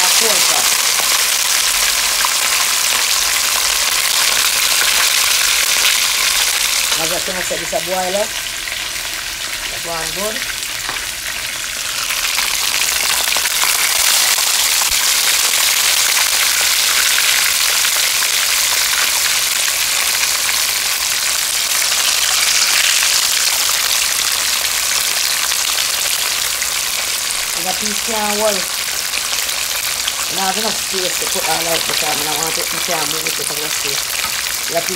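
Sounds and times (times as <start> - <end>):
fish sizzling in hot oil: 0.0 - 34.9.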